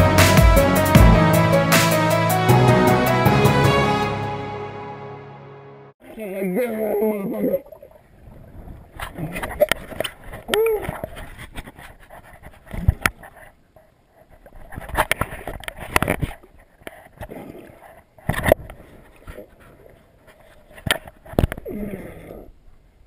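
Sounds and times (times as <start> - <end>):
muffled underwater river swirl: 7.6 - 10.2.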